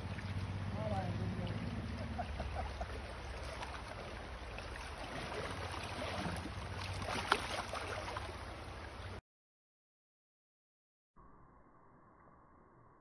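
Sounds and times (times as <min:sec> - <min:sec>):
shallow river water running: 0:00.0 - 0:09.2
small water splashes: 0:00.0 - 0:09.2.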